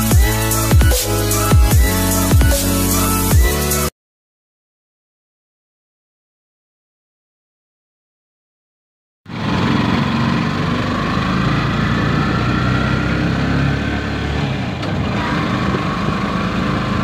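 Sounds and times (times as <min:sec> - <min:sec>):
motorcycle engine running: 0:09.3 - 0:14.3.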